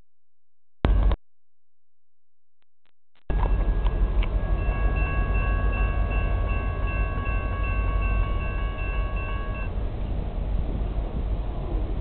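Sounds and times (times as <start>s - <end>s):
low rumble: 0.8s - 1.2s, 3.3s - 12.0s
railroad crossing bell ringing: 3.3s - 9.8s.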